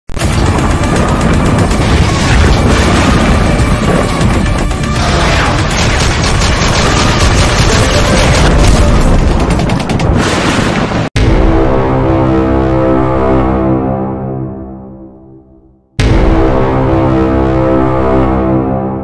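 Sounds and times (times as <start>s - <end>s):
soundtrack music: 0.2s - 10.2s, 11.2s - 19.0s
rapid gunfire: 0.2s - 11.0s
booms: 0.2s - 11.8s.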